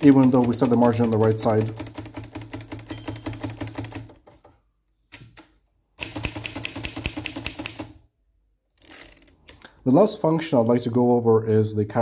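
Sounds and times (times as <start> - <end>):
manual typewriter typing: 0.0 - 4.4, 6.0 - 8.0.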